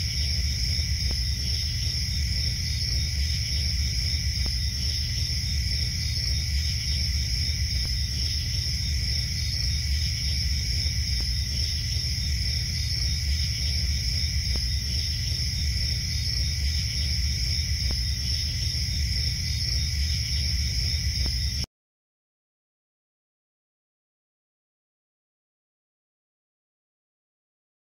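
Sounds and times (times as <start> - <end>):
crickets chirping: 0.0 - 21.7.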